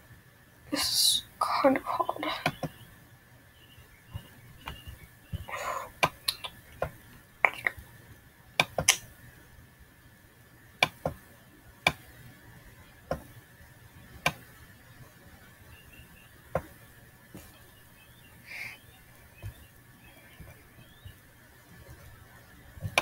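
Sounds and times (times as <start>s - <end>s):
computer mouse clicking: 8.6s - 9.1s, 10.8s - 11.2s, 11.9s - 12.1s.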